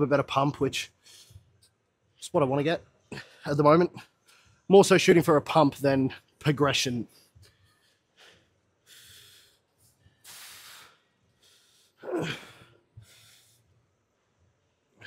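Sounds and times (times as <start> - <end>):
man breathing hard: 7.4 - 13.8
man grunting: 12.0 - 12.6.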